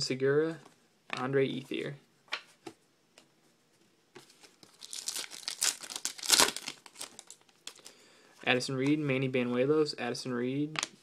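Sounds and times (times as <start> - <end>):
foil wrapper tearing and crinkling: 4.6 - 7.9.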